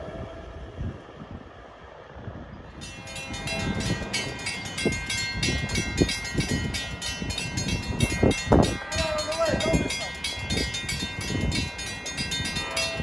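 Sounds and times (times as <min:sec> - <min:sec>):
low rumbles: 0:00.0 - 0:13.0
crossing warning bell ringing: 0:02.7 - 0:13.0.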